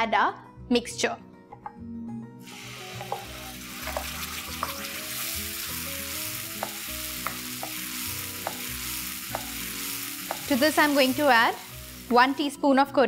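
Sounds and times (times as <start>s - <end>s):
paste sizzling in hot oil: 2.4s - 12.6s
wooden spoon tapping pan: 3.0s - 4.7s, 8.4s - 10.7s.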